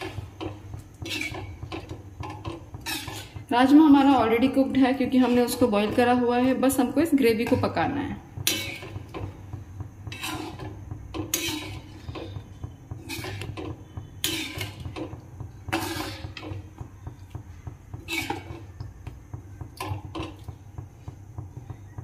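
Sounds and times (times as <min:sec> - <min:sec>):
ladle scraping metal pan: 0:00.0 - 0:06.2, 0:08.4 - 0:09.4, 0:10.0 - 0:16.8, 0:17.9 - 0:18.8.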